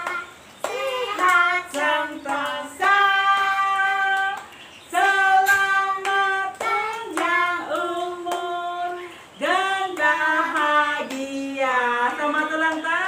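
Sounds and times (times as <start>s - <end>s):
hands clapping: 0.0s - 8.6s, 9.9s - 11.4s
woman and children singing: 0.0s - 13.0s.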